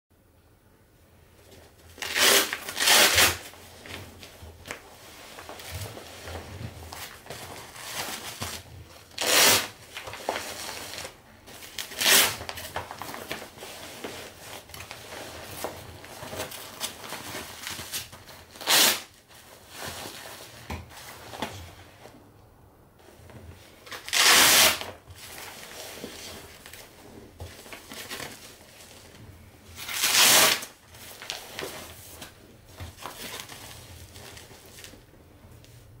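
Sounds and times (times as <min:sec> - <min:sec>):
padded fabric rustling: 0:01.4 - 0:09.0.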